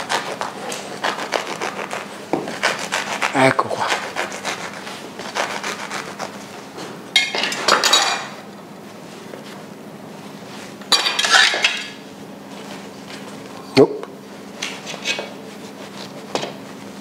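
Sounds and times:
knife clatter and crust crackle: 10.9s - 12.0s.

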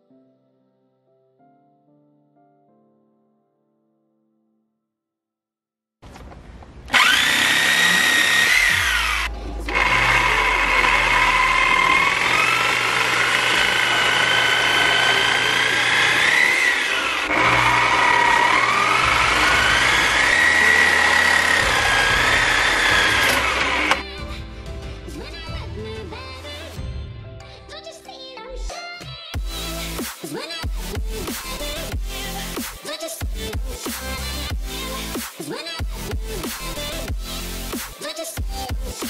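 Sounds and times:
power saw cutting plastic pipe: 6.9s - 24.0s.

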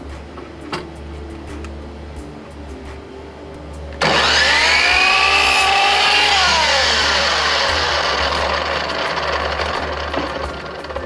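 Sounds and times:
electric miter saw whining: 4.0s - 11.0s
saw cutting wood: 4.0s - 11.0s.

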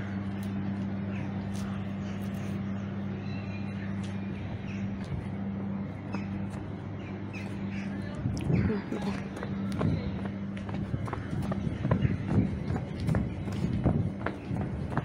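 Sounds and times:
low hum: 0.0s - 15.0s
crows cawing: 7.0s - 10.2s.

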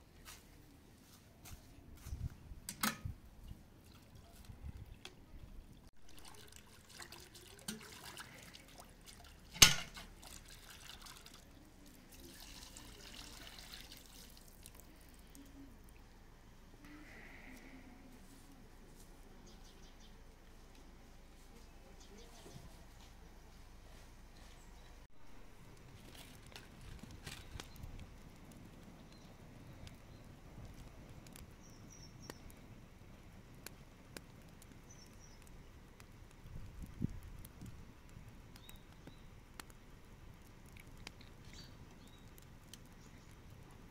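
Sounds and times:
water splashing and trickling: 3.4s - 16.1s, 40.3s - 43.9s
sharp clicks and crackles: 25.5s - 43.9s
small bird chirping: 31.5s - 32.7s, 34.8s - 35.7s, 38.6s - 39.4s, 41.4s - 43.4s.

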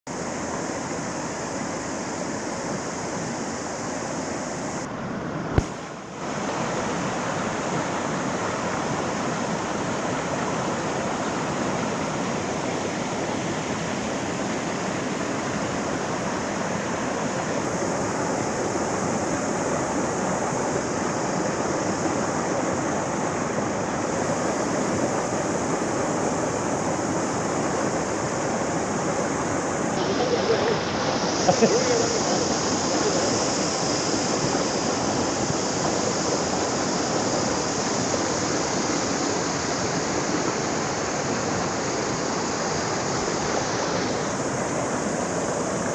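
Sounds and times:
stream rushing over rocks: 0.1s - 45.9s
sharp click: 5.6s - 5.8s.

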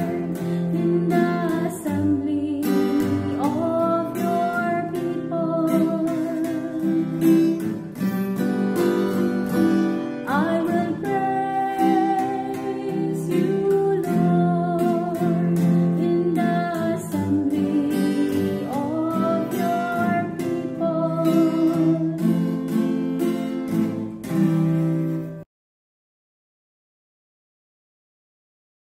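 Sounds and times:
person singing: 0.0s - 7.6s, 10.1s - 22.8s
strummed acoustic guitar: 0.0s - 25.5s.

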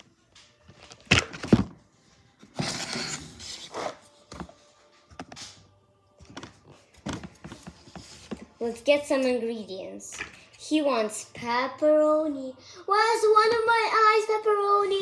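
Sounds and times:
wooden rubbing scrape: 2.5s - 4.1s.

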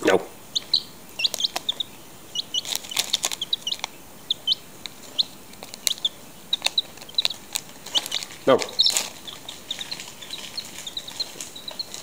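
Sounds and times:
chick peeping: 0.0s - 12.0s
crisps and foil crackling: 1.2s - 1.8s, 2.5s - 4.0s, 4.8s - 12.0s.

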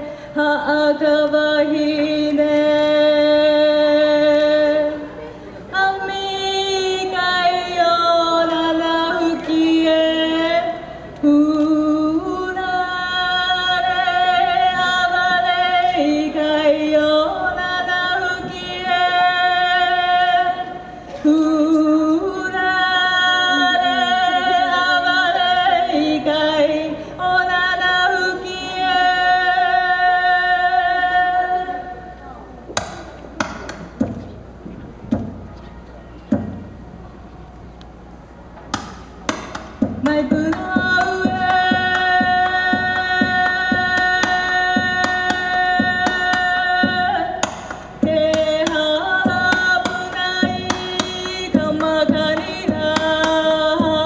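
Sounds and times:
person chanting with vibrato: 16.9s - 27.4s.

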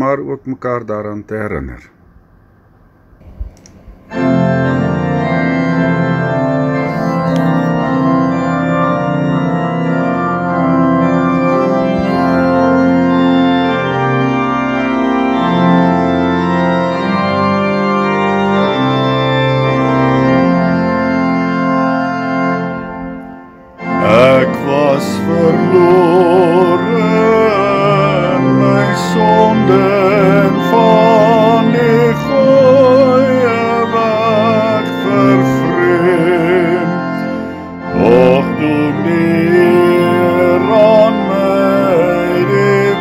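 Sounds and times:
organ playing sustained chords: 2.4s - 43.0s
person singing: 6.7s - 8.4s, 11.4s - 13.2s, 23.9s - 43.0s.

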